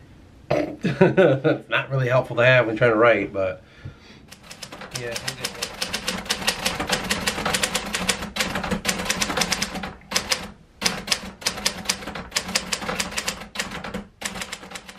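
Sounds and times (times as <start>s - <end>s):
typewriter key clacks: 4.3s - 14.9s.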